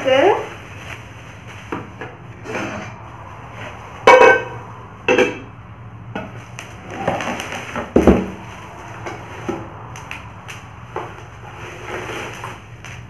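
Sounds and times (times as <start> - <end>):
plastic wrapping rustling: 0.0 - 4.7, 6.2 - 13.0
pots and lids clanking: 4.0 - 5.6.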